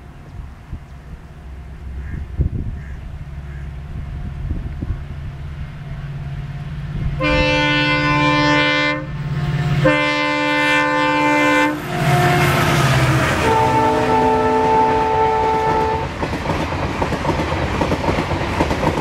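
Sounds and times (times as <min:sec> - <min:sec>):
locomotive engine drone: 0:00.0 - 0:19.0
locomotive air horn: 0:07.2 - 0:16.1.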